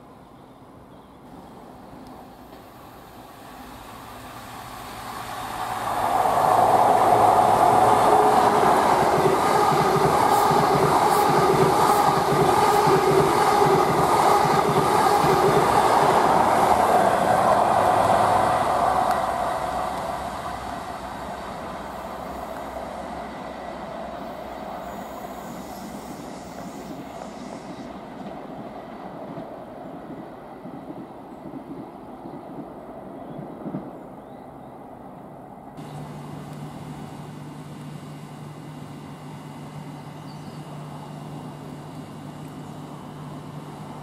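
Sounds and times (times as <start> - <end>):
train wheels rumbling on rail: 1.2 - 44.0
steady whine: 1.4 - 28.4, 35.8 - 44.0.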